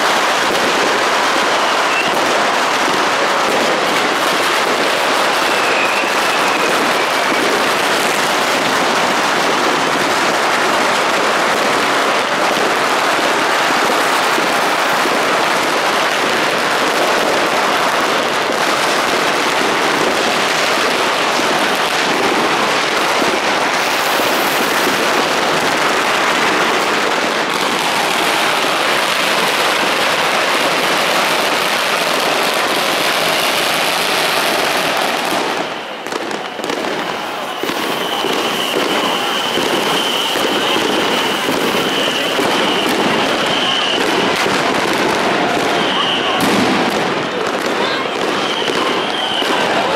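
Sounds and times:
firecrackers crackling: 0.0s - 49.9s
high whistle: 1.7s - 2.1s, 5.4s - 7.5s, 37.1s - 44.3s, 45.7s - 46.4s, 48.3s - 49.9s.

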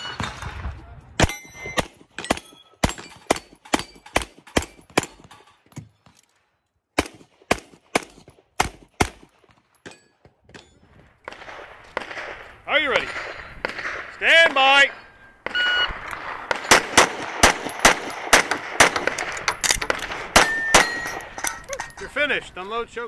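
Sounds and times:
rapid pistol shots: 1.2s - 5.3s, 7.0s - 9.4s, 11.2s - 14.2s, 15.4s - 21.2s
steel plates clanging: 19.4s - 22.2s.

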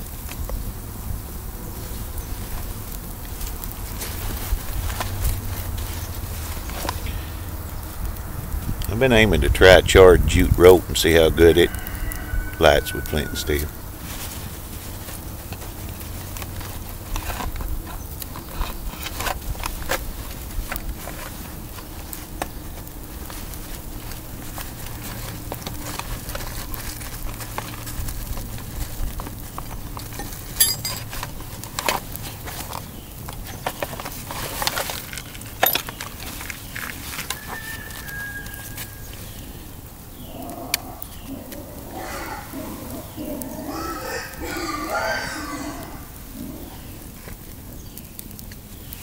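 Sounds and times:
crackling wood fire: 0.0s - 49.0s
flint and steel striking clicks: 30.1s - 31.3s
steel striker hitting stone: 30.6s - 31.0s.

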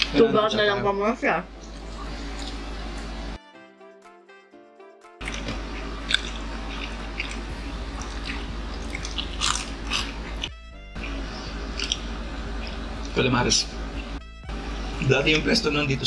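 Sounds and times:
background music: 0.0s - 16.0s
chewing and mouth smacks: 1.6s - 2.6s, 5.2s - 13.2s.

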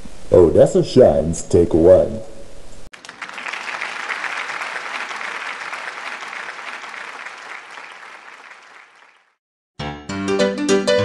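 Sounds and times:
crowd applauding: 2.9s - 9.4s.

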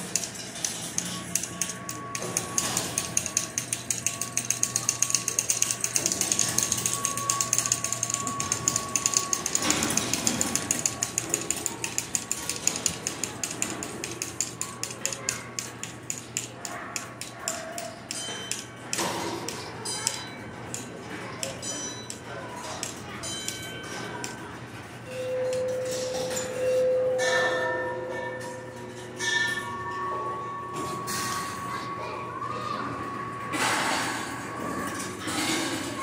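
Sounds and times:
balls clattering on metal tracks: 0.0s - 26.8s
steady high tone: 1.0s - 15.4s.

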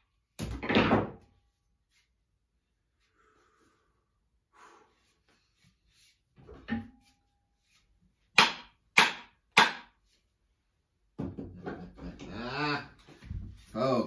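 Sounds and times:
sharp wooden knocks: 8.4s - 10.0s.

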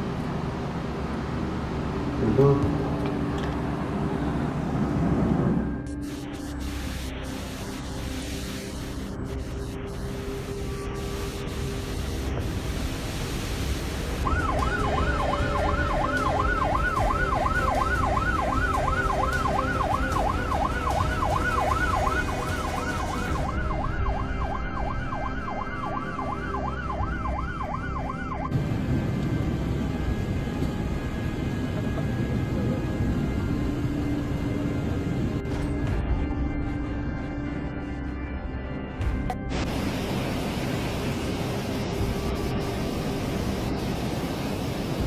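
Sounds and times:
steady rushing noise: 0.0s - 45.0s
emergency siren yelping: 14.1s - 35.0s.

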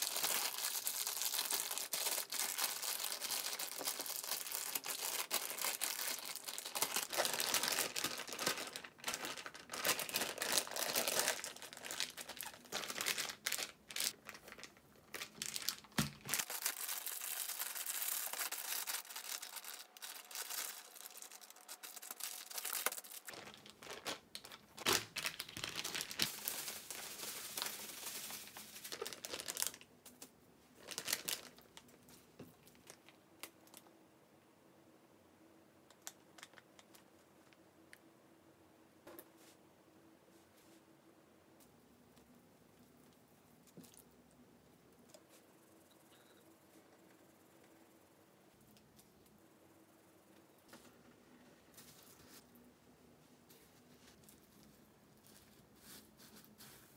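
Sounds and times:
plastic bags crinkling: 0.0s - 33.9s.

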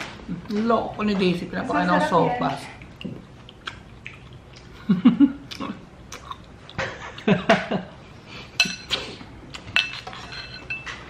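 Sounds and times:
low mouth or throat sounds: 5.3s - 6.4s
metal spoon clinking against bowl: 9.8s - 11.0s.

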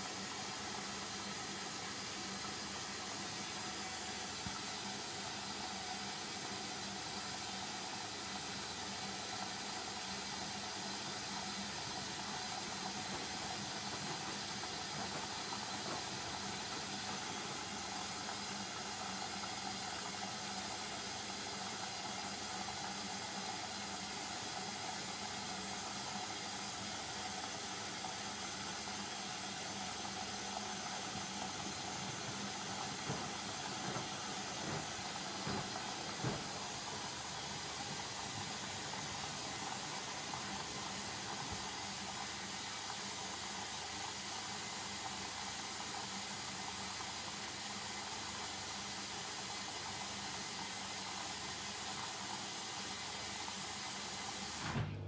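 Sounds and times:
water running into washing machine: 0.0s - 55.0s
drum knocks: 32.3s - 38.5s.

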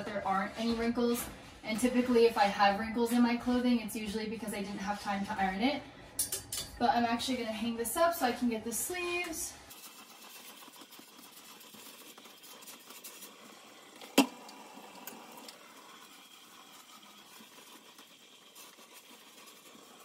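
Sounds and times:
garment steamer running: 8.9s - 20.0s.

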